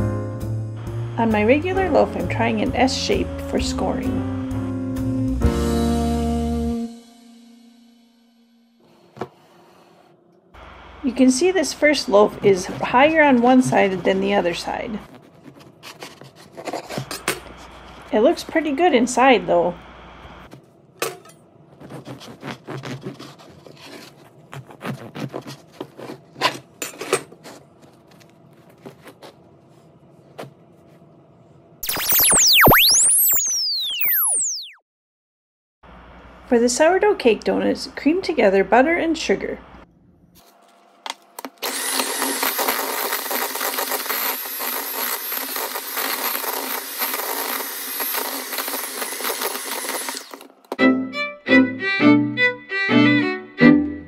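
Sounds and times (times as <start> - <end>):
bread knife sawing through loaf: 21.7 - 26.6
electric hand mixer running: 41.6 - 50.5.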